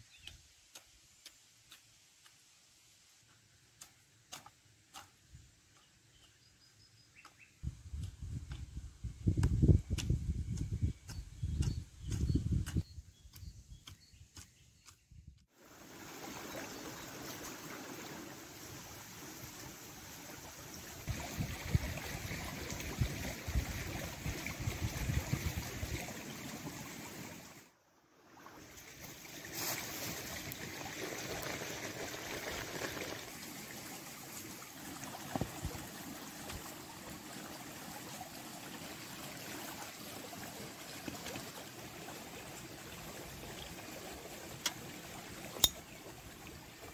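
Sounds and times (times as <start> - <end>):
stream water rushing: 15.6 - 46.9.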